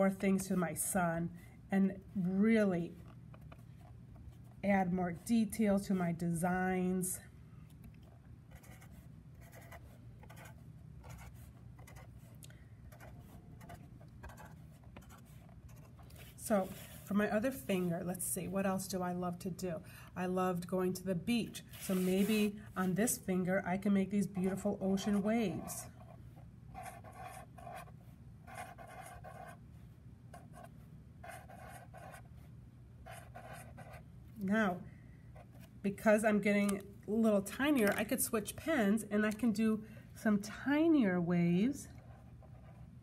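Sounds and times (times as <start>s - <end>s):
marker scratching on paper: 8.5s - 12.3s, 12.9s - 18.0s, 21.6s - 23.1s, 24.3s - 29.6s, 30.3s - 34.0s.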